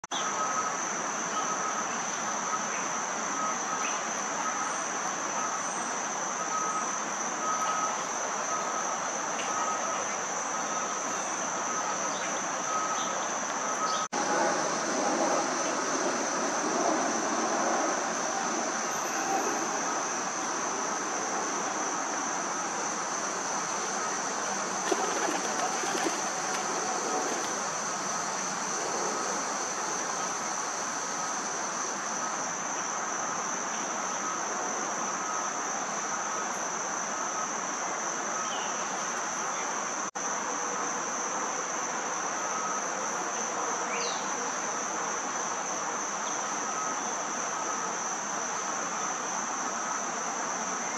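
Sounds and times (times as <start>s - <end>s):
insects trilling: 0.1s - 50.9s
background hiss: 18.8s - 32.6s.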